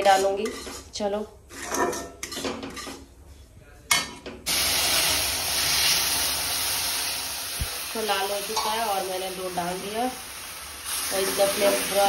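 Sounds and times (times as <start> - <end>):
ladle scraping a pan: 0.0 - 3.1
milk sizzling in hot pan: 4.5 - 12.0.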